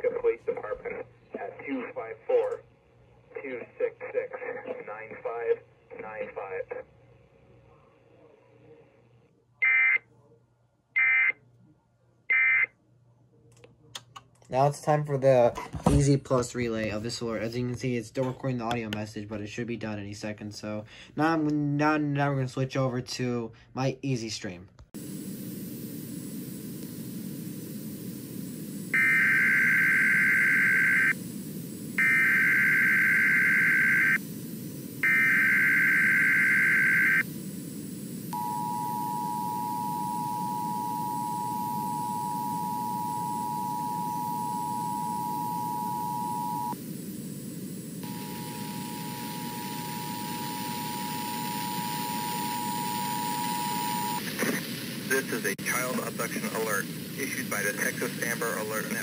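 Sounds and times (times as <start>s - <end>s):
low hiss: 24.9s - 42.0s
buzzy data bursts: 25.0s - 54.2s.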